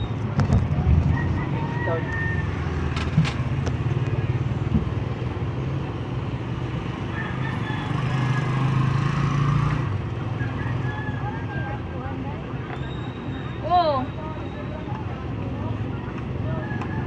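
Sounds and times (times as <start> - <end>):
street traffic noise: 0.0 - 17.0
motorcycle engine running: 2.3 - 7.1.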